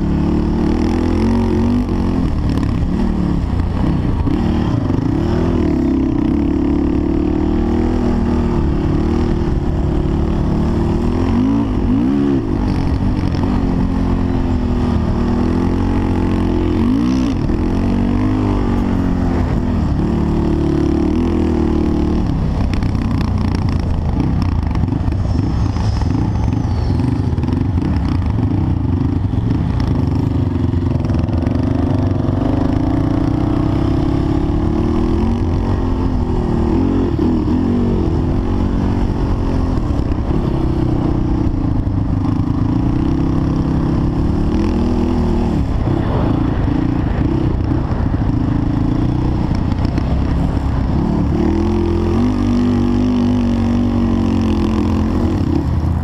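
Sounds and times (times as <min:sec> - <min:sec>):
off-road vehicle engine revving: 0:00.0 - 0:30.1, 0:48.9 - 0:55.8.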